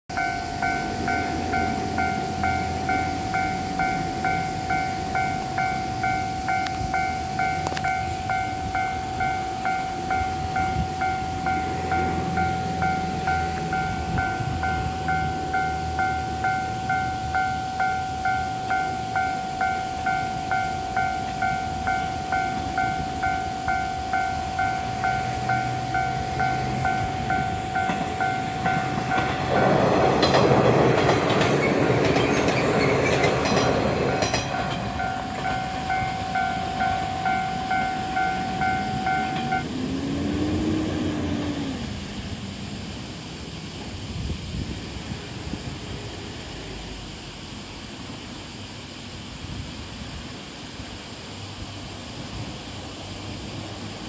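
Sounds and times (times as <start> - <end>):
level crossing warning bell: 0.1 - 39.9
approaching train rumble: 0.1 - 54.0.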